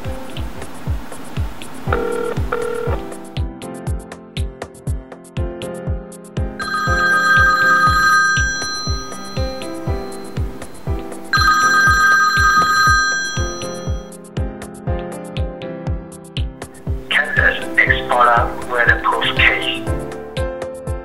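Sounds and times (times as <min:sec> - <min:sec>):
background music with steady beat: 0:00.0 - 0:21.0
phone ringing: 0:01.8 - 0:03.3, 0:06.6 - 0:14.2.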